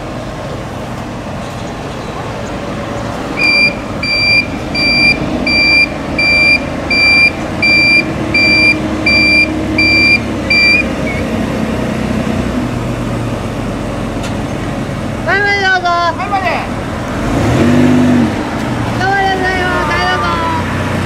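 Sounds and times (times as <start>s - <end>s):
vehicle engine running low: 0.0s - 21.0s
electronic warning beeps: 3.4s - 11.2s.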